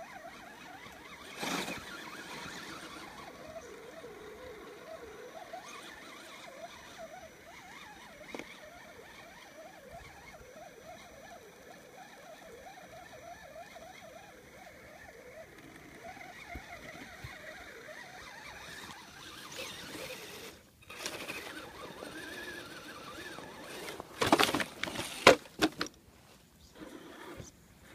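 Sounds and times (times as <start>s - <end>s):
faint electric motor whine: 0.0s - 27.9s
camera handling rustles and bumps: 23.7s - 26.0s.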